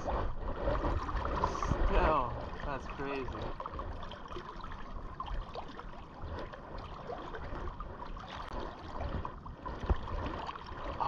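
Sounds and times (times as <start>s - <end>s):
river water rushing and lapping: 0.0s - 11.0s.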